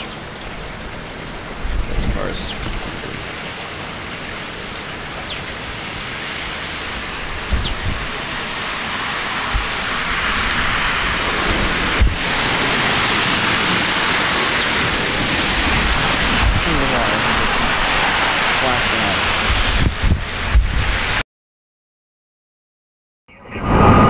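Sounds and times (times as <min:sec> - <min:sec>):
heavy rain hissing: 0:00.0 - 0:21.2
car tyres swishing through water: 0:02.6 - 0:21.2.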